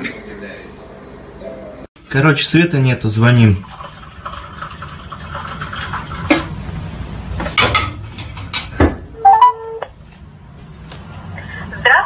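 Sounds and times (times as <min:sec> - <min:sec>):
rising beep: 0:09.2 - 0:09.8
ringback tone: 0:09.2 - 0:09.9.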